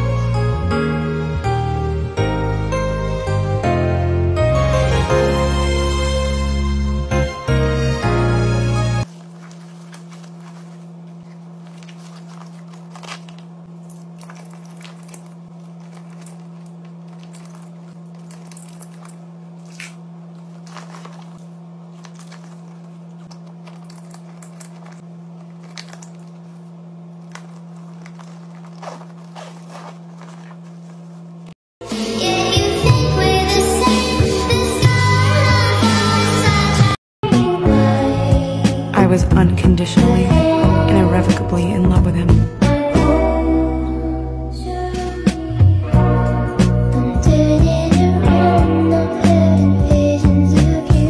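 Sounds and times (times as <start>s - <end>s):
items rustling in backpack: 9.0s - 31.6s
steady low hum: 9.0s - 31.6s.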